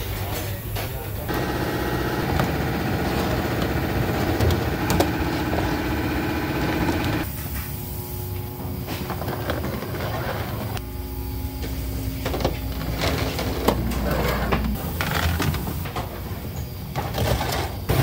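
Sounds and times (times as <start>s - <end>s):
machinery droning: 1.2s - 7.3s, 8.2s - 15.9s.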